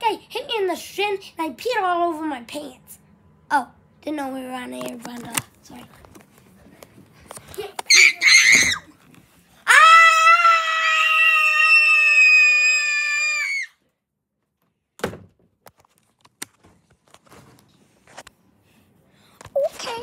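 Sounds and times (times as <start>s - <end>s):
child screaming: 7.9s - 8.9s, 9.7s - 13.8s
thump: 15.0s - 15.4s.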